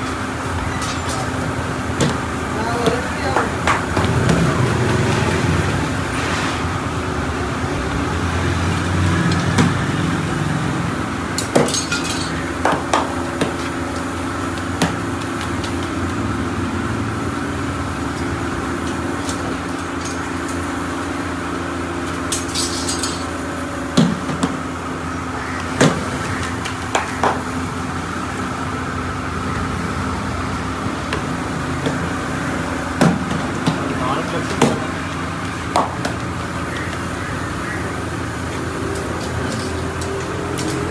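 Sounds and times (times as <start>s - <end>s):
steady background hum: 0.0s - 40.9s
metal rods clinking: 0.6s - 1.5s, 11.4s - 12.5s, 18.1s - 20.6s, 22.0s - 23.4s, 38.9s - 40.9s.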